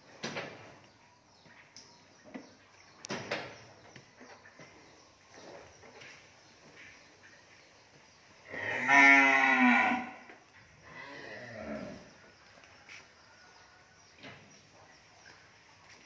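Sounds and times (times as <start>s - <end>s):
cow mooing: 8.5s - 10.2s.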